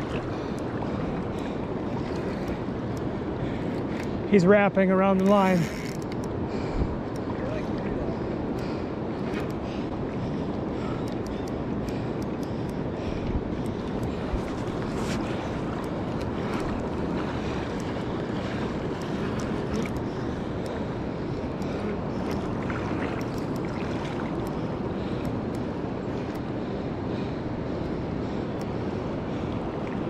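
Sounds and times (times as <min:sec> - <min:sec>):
wind buffeting microphone: 0:00.0 - 0:30.0
faint clicks: 0:05.2 - 0:06.4, 0:10.4 - 0:16.8, 0:23.2 - 0:23.7
river water rushing: 0:14.2 - 0:24.8.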